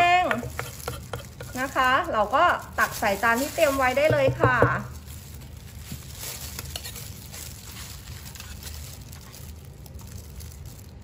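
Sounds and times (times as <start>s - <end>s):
metal spoon scraping mortar: 0.0s - 2.1s, 6.6s - 7.2s.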